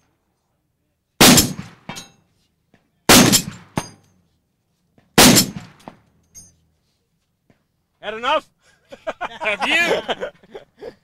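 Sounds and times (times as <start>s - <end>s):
rifle shots booming: 1.2s - 2.0s, 3.1s - 4.0s, 5.2s - 6.0s
sharp crack: 1.2s - 2.0s, 3.1s - 4.0s, 5.2s - 6.0s.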